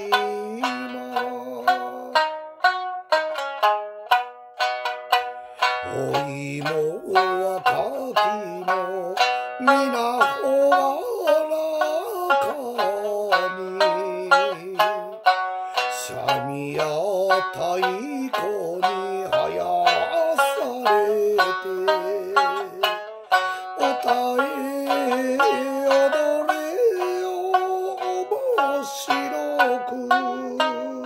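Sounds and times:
plucked lute melody: 0:00.0 - 0:31.0
sustained wavering melody line: 0:05.3 - 0:31.0.

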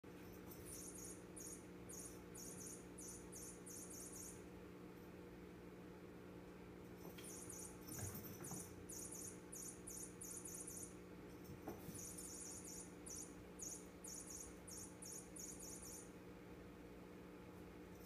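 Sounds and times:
steady low hum: 0:00.0 - 0:18.0
high-pitched chirping: 0:00.1 - 0:04.5, 0:07.0 - 0:11.0, 0:11.7 - 0:16.2.

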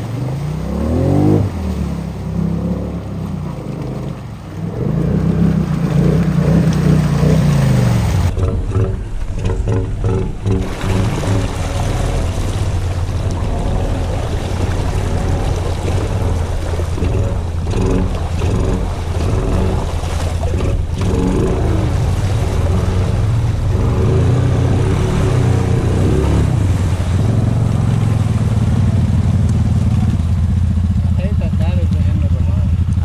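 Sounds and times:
water churning: 0:00.0 - 0:33.0
quad bike engine running: 0:02.6 - 0:33.0.

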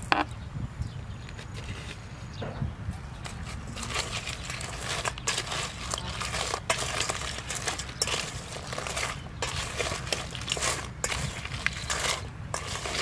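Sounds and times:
crab shells clicking in metal bowl: 0:03.2 - 0:13.0.

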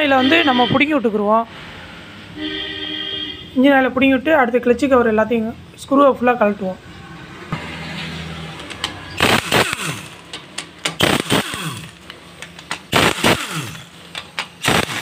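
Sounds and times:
power driver spinning bolts: 0:08.6 - 0:15.0.

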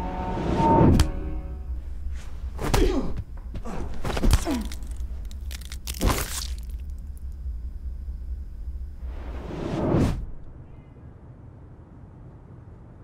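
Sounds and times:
film music: 0:00.0 - 0:02.6.

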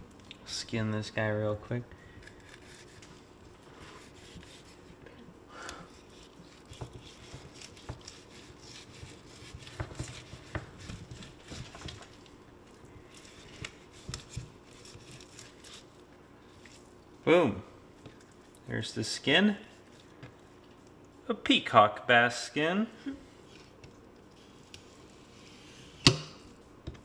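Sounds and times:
knife scraping and tearing fish skin: 0:02.1 - 0:05.0, 0:05.9 - 0:12.3, 0:13.0 - 0:17.0.

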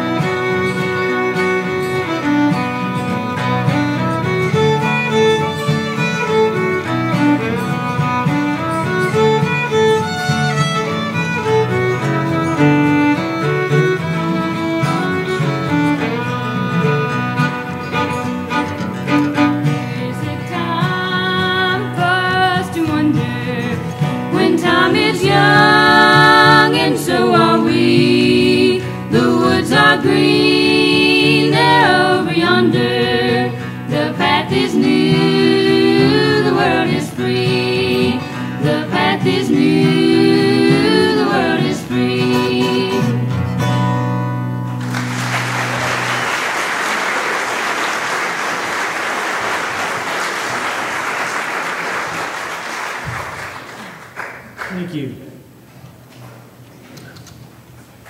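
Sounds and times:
strummed acoustic guitars: 0:00.0 - 0:46.5
women singing in harmony: 0:19.9 - 0:43.3
audience applause: 0:44.8 - 0:54.9.

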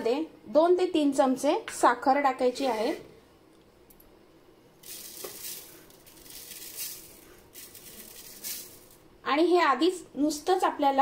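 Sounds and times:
sugar pouring into plastic jar: 0:04.8 - 0:09.0.

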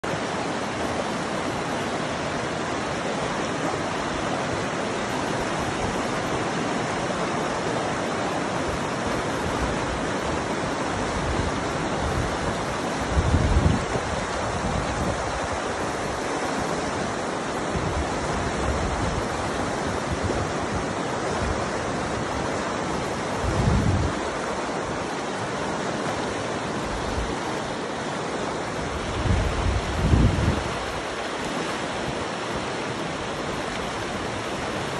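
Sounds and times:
river rushing over rocks: 0:00.0 - 0:34.9
wind buffeting microphone: 0:08.6 - 0:25.0, 0:28.8 - 0:34.9.

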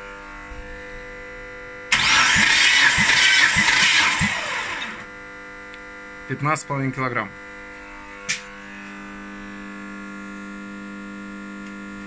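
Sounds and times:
engine cranking whir: 0:01.9 - 0:05.1.

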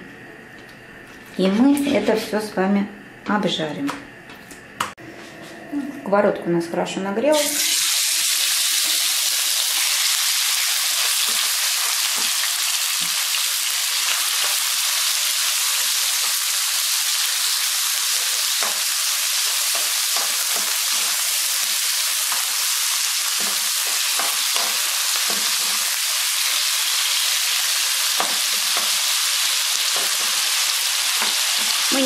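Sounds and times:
chicken sizzling in oil: 0:07.4 - 0:32.0.

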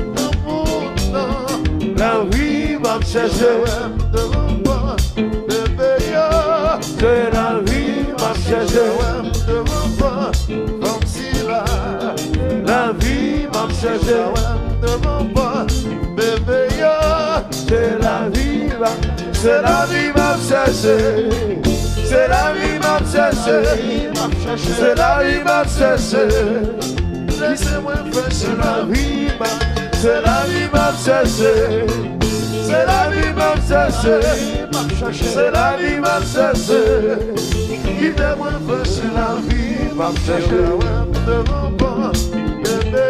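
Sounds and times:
live band playing: 0:00.0 - 0:43.0
man singing: 0:00.0 - 0:43.0
steady drum beat: 0:00.0 - 0:43.0.

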